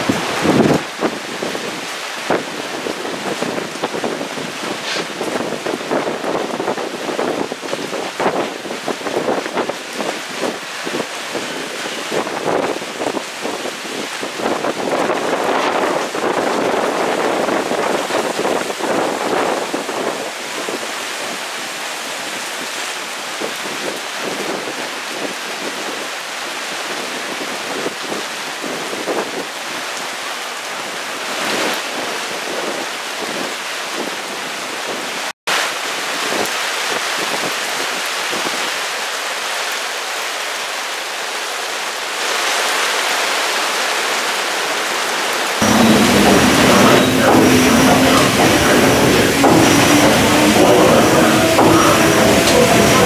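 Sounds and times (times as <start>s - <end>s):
torrential rain pouring: 0.0s - 53.0s.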